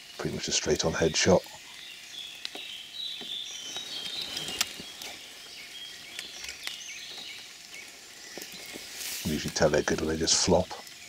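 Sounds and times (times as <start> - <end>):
distant birdsong: 0.0 - 11.0
raindrops dripping on car roof: 2.4 - 11.0.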